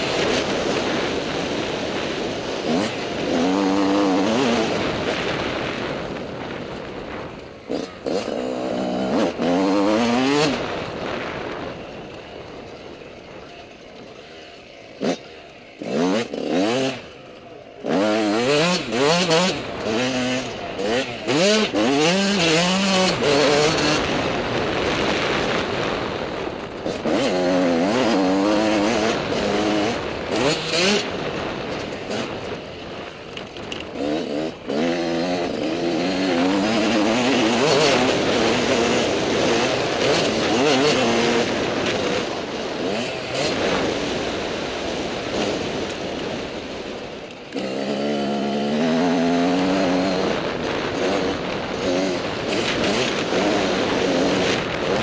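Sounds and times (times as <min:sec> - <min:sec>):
wind noise on microphone: 0:00.0 - 0:13.5, 0:17.8 - 0:55.0
dirt bike engine revving: 0:00.0 - 0:55.0.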